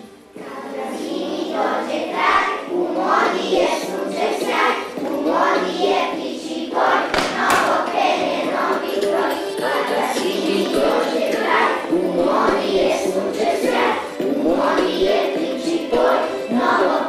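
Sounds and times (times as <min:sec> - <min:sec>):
children singing with music: 0:00.0 - 0:17.0
sharp knock: 0:07.1 - 0:07.8.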